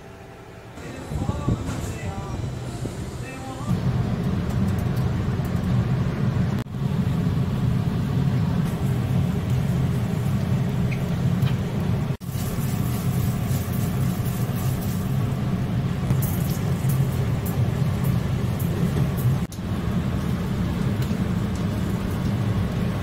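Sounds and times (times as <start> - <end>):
low rumble: 0.8 - 13.4.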